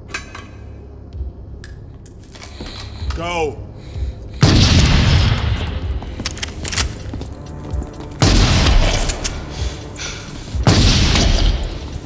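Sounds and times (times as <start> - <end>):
film score music: 0.0 - 12.0
shotgun blasts echoing: 4.4 - 5.9, 8.2 - 9.2, 10.6 - 11.9.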